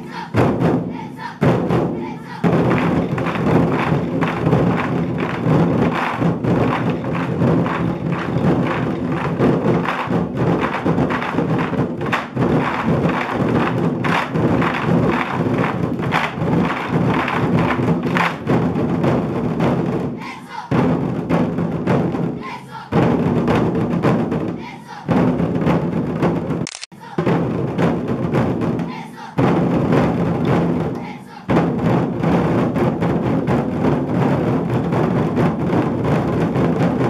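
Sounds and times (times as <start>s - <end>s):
barrel drums struck with sticks: 0.0s - 26.6s, 27.2s - 37.0s.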